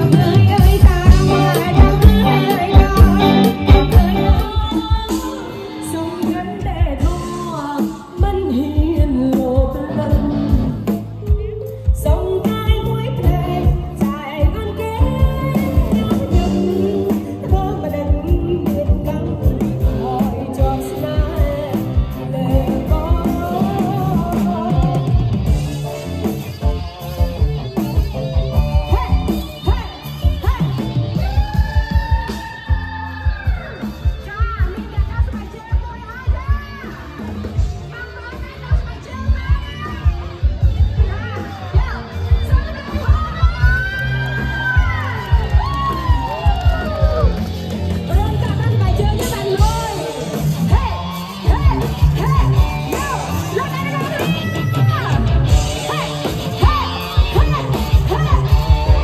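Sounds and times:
steady drum beat: 0:00.0 - 0:05.6, 0:06.2 - 0:59.0
person singing: 0:00.0 - 0:25.6
quiet band backing: 0:00.0 - 0:59.0.

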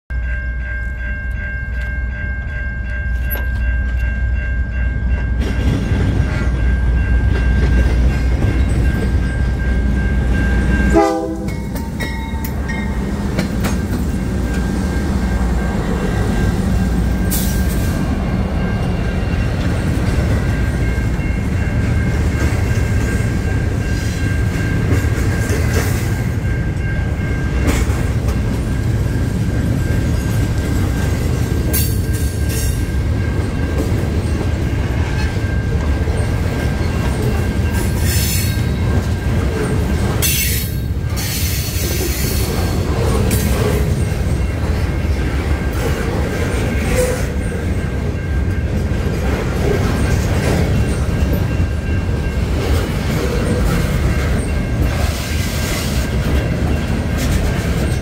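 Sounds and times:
freight train rumbling past: 0:00.1 - 0:58.0
train horn: 0:10.9 - 0:11.8
train wheel clicks: 0:11.4 - 0:18.0.

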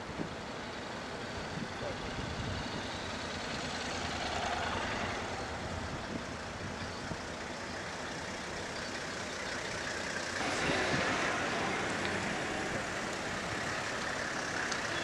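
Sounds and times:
pickup truck engine passing: 0:01.5 - 0:15.0
motorcycle passing: 0:02.9 - 0:07.5, 0:10.4 - 0:15.0.

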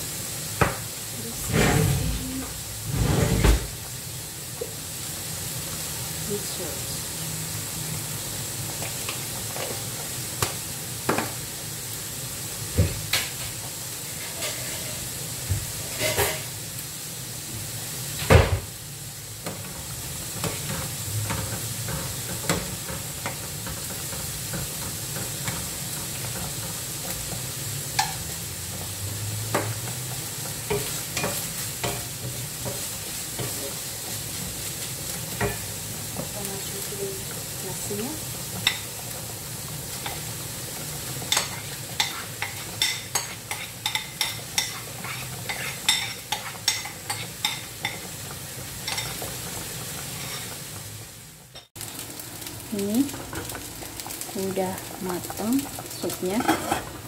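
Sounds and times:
rice sizzling in a frying pan: 0:00.0 - 0:57.0
wooden spatula scraping pan: 0:01.2 - 0:03.8, 0:14.1 - 0:15.1, 0:41.2 - 0:48.0, 0:56.0 - 0:57.0.

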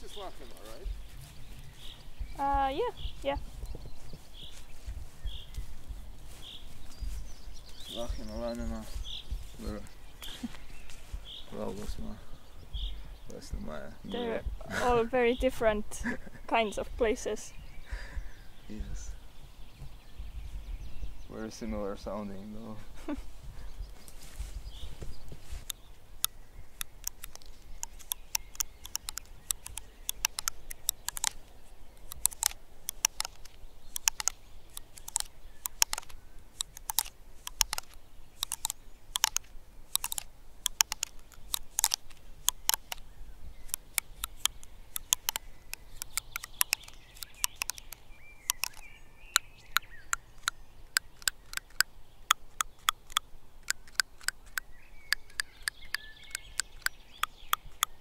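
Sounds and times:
dry clicks of cone scales: 0:25.6 - 0:58.0.

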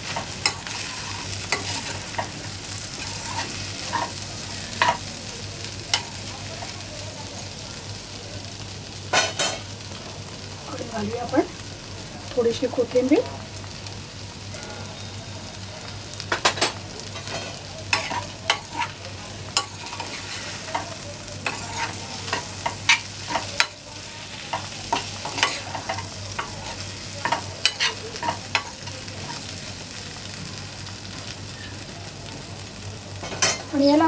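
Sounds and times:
metal spoon scraping a pan: 0:00.0 - 0:05.0, 0:16.4 - 0:29.5
potatoes sizzling in oil: 0:00.0 - 0:34.0.

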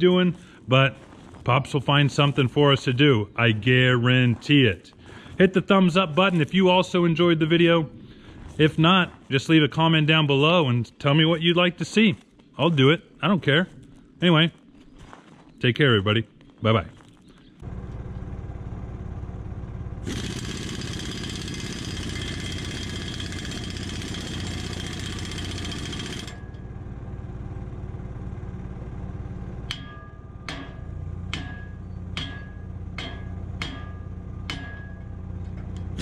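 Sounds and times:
engine running: 0:17.6 - 0:36.0
harsh whining noise: 0:17.6 - 0:36.0
hammer ringing on steel: 0:29.7 - 0:35.8.

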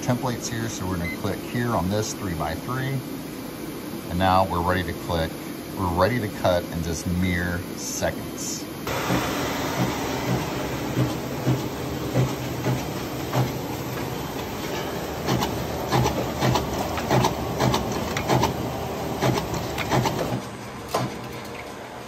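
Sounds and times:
machine hum: 0:08.6 - 0:22.0.

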